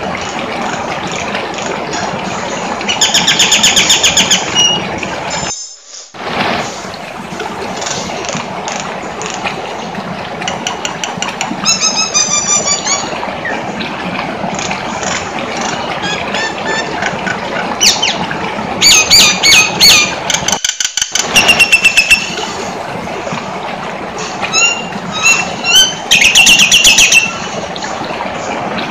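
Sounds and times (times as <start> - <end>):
myna calling with whistles and squawks: 2.9 - 4.9, 24.5 - 27.4.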